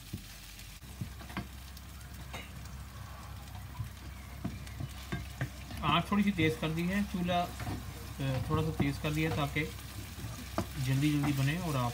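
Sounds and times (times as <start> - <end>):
onions sizzling in frying pan: 0.0 - 11.9
wooden spoon scraping pan: 4.0 - 11.9.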